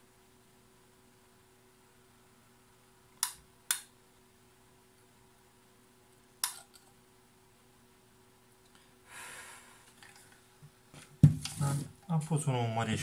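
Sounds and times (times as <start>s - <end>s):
faint steady hum: 0.0s - 13.0s
sharp click: 3.2s - 3.9s
short breath: 8.8s - 9.9s.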